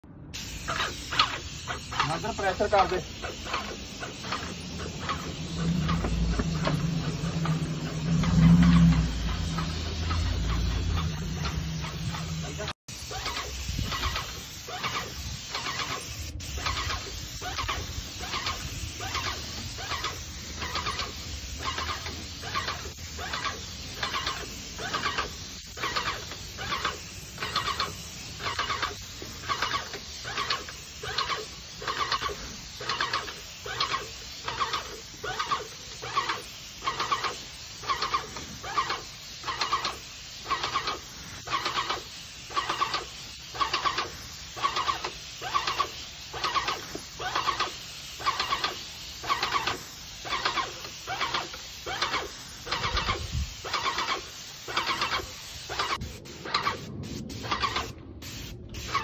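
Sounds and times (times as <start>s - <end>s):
paint sprayer hissing: 0.4s - 59.0s
squeaky repeated pulses: 4.2s - 15.0s.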